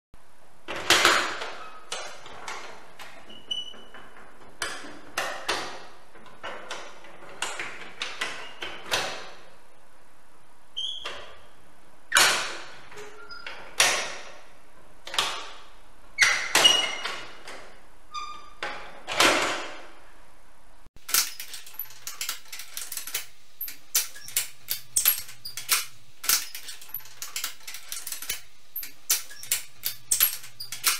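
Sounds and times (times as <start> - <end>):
metal lock clicks and clanks: 21.0 - 30.9.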